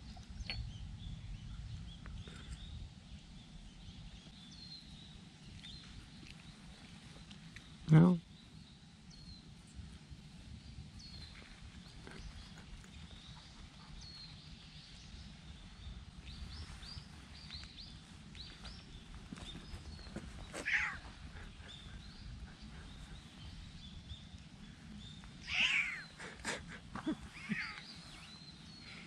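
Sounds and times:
birds chirping: 0.0s - 29.0s
cat meowing hoarsely: 20.6s - 21.1s, 25.4s - 26.0s.

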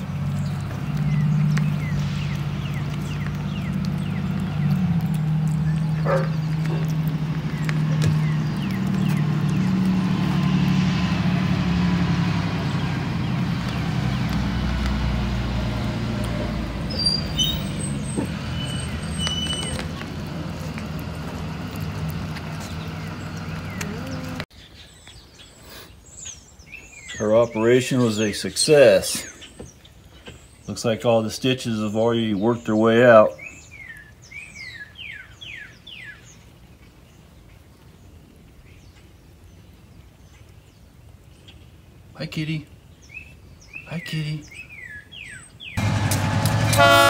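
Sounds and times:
diesel bus engine running: 0.0s - 24.4s, 45.8s - 47.0s
short high squeaks: 16.9s - 20.0s.

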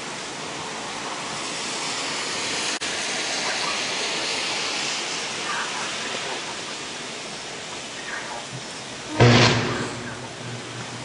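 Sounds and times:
hurricane wind and rain: 0.0s - 11.0s
power lines arcing: 2.8s - 11.0s.

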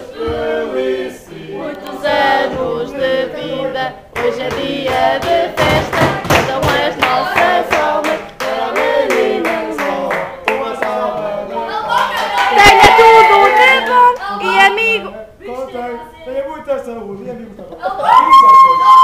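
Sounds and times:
group singing: 0.0s - 14.7s.

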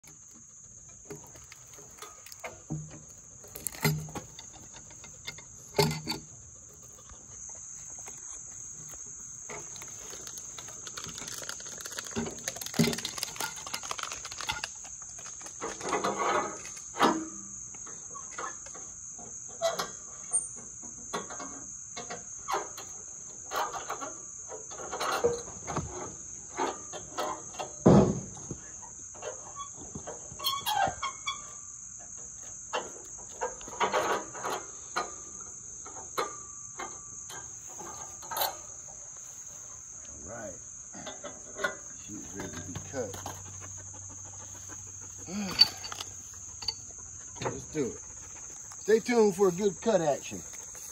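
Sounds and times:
log knocking and scraping on steel: 0.0s - 17.4s
high insect chorus: 0.0s - 50.9s.

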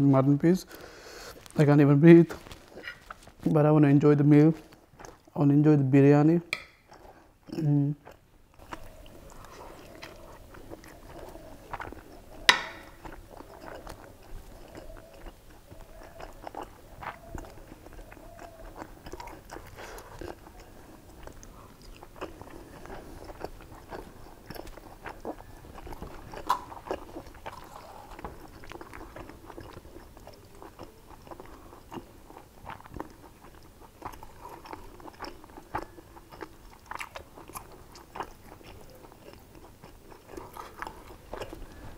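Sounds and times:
man chewing food: 2.2s - 3.6s, 4.4s - 5.4s, 6.6s - 41.9s.

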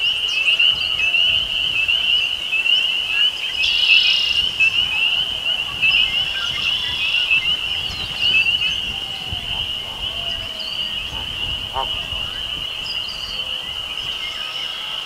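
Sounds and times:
frogs peeping in chorus: 0.1s - 15.0s
buzzy bird call: 6.8s - 12.6s.

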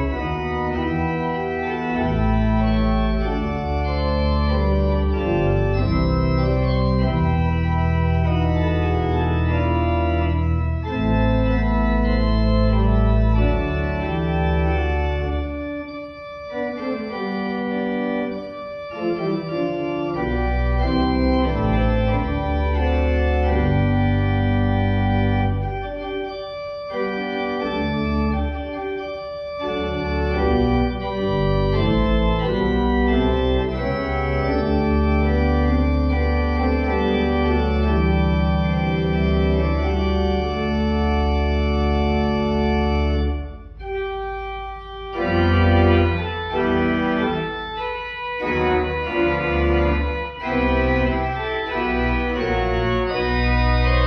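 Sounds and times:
church organ chords: 0.0s - 54.0s.

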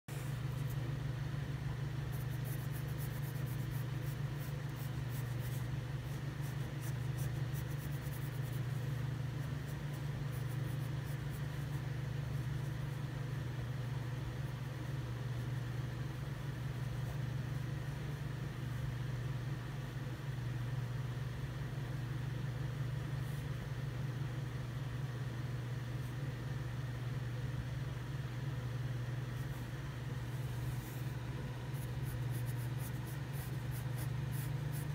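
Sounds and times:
pencil scratching on paper: 2.0s - 13.2s, 30.5s - 34.9s.

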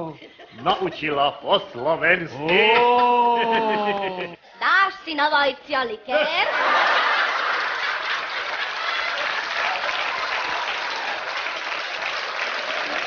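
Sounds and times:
audience applause: 6.5s - 13.0s.

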